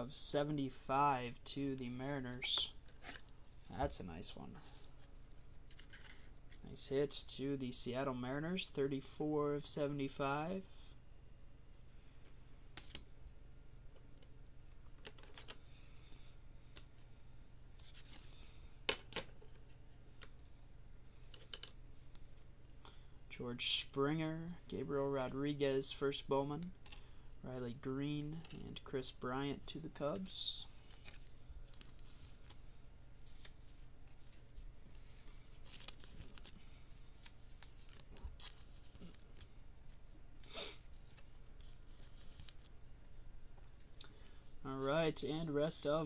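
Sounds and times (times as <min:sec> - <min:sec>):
low steady hum: 0:00.0 - 0:46.0
crumpled wrapper rustling: 0:35.0 - 0:39.6.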